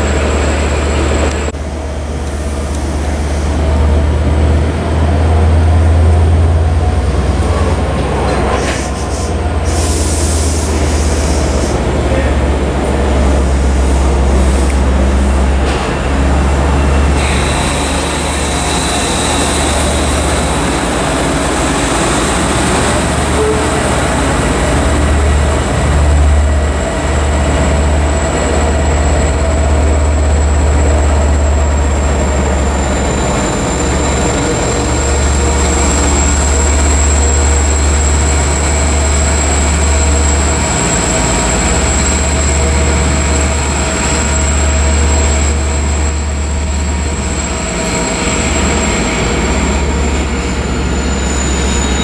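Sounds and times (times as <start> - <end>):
diesel locomotive rumble: 0.0 - 52.0.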